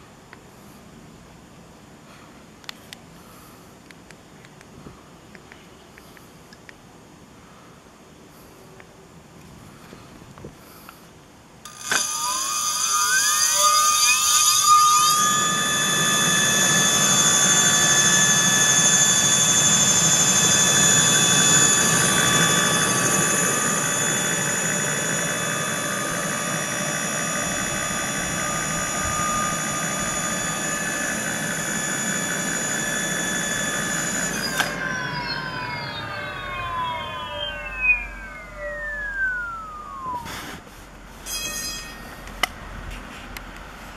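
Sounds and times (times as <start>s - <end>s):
electric motor whine: 11.7s - 40.6s.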